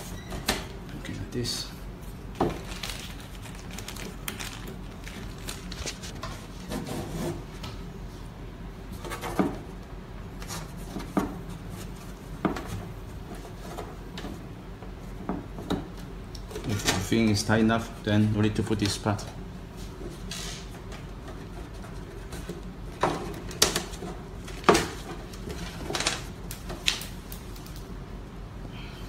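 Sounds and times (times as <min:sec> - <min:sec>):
rubbing and handling noise: 0:01.9 - 0:07.8, 0:10.4 - 0:15.2, 0:19.7 - 0:27.8.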